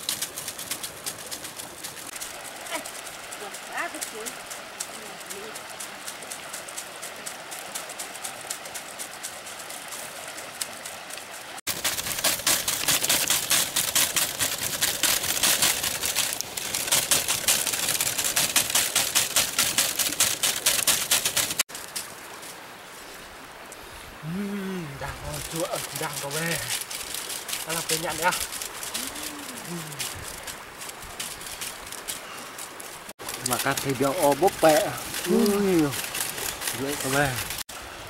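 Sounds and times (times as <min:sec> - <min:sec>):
wood fire crackling: 0:00.0 - 0:22.8, 0:23.6 - 0:37.6
fish sizzling on a grill: 0:02.0 - 0:05.7, 0:24.3 - 0:37.6.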